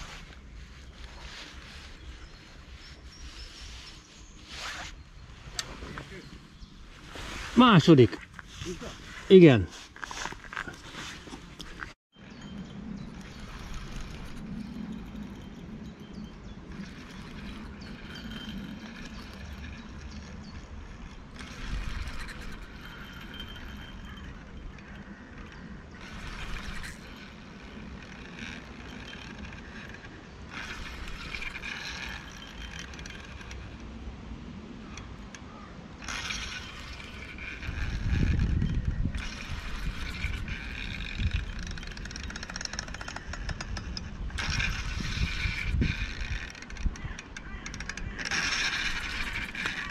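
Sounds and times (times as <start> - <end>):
wind rumbling on microphone: 0.0 - 49.9
fishing reel ticking rapidly: 13.0 - 33.7, 36.0 - 49.9.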